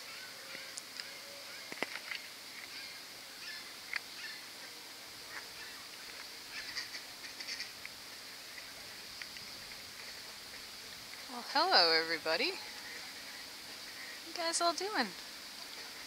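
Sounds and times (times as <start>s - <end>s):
faint steady hiss: 0.0s - 16.0s
goslings peeping: 5.2s - 7.9s.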